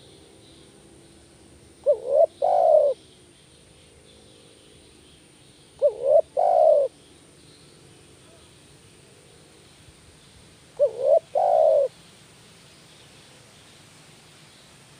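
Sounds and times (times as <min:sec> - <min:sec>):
dove cooing: 0:01.8 - 0:03.0, 0:05.8 - 0:06.9, 0:10.8 - 0:11.9.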